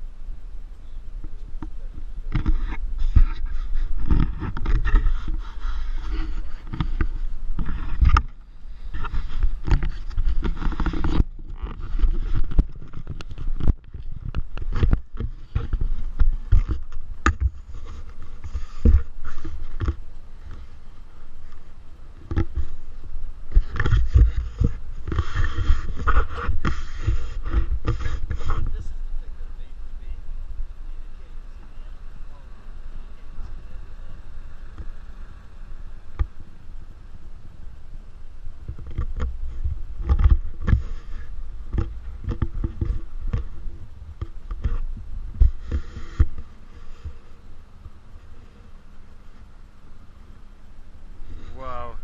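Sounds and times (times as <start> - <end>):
faint hiss: 0.0 - 52.0
microphone handling knocks: 38.7 - 47.2.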